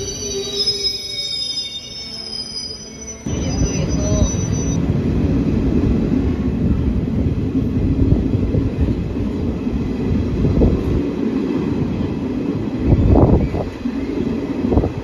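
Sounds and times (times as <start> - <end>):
train wheels rumbling on rails: 3.2 - 15.0.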